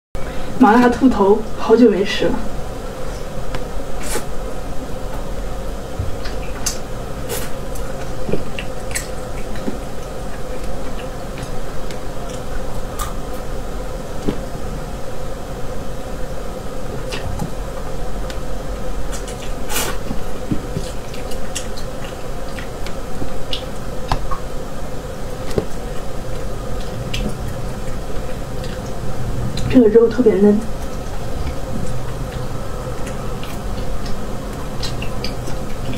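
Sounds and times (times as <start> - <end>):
person chewing: 6.2 - 13.5, 25.4 - 29.7, 30.7 - 35.9.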